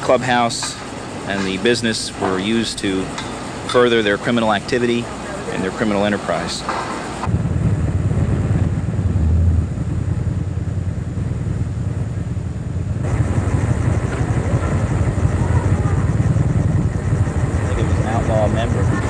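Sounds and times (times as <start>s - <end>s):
faint voices: 0.0s - 7.3s, 14.2s - 19.0s
vehicle engine rumbling: 6.5s - 19.0s.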